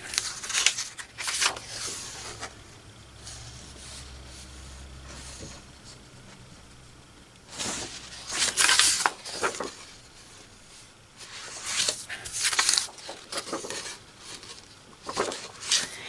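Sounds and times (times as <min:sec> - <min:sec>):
paper rustling: 0:00.0 - 0:02.6, 0:07.5 - 0:16.0.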